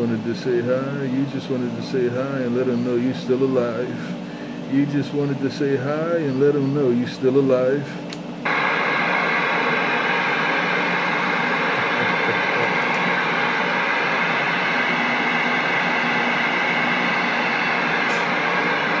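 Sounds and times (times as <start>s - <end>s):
faint humming tones: 0.0s - 19.0s
radio static hiss: 8.5s - 19.0s.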